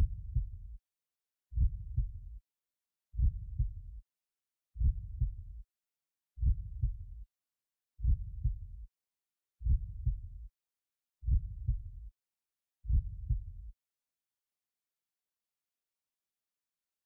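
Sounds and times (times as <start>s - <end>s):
slow double heartbeat: 0.0s - 0.8s, 1.6s - 2.4s, 3.2s - 4.0s, 4.8s - 5.6s, 6.4s - 7.2s, 8.0s - 8.8s, 9.6s - 10.5s, 11.2s - 12.1s, 12.9s - 13.7s.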